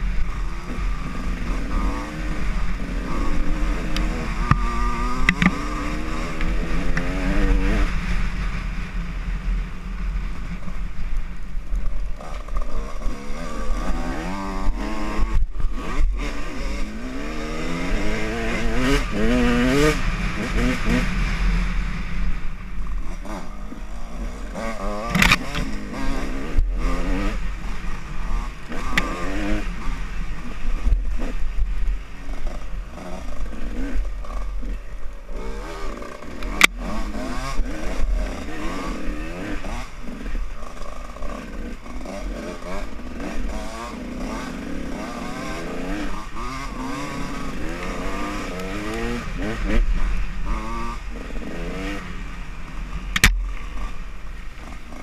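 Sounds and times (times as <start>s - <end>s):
low rumble: 0.0s - 35.8s, 45.0s - 55.0s
dirt bike engine revving: 0.0s - 55.0s.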